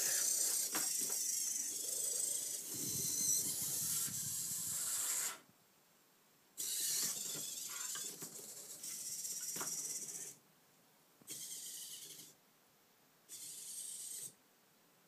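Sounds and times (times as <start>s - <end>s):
robot servo motors whirring: 0.0s - 5.4s, 6.6s - 10.4s, 11.3s - 12.4s, 13.3s - 14.4s.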